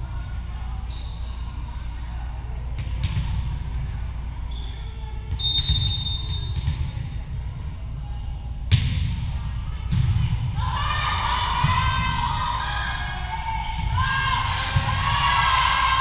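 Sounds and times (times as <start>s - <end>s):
low gym hum: 0.0s - 16.0s
referee's whistle: 5.4s - 6.6s.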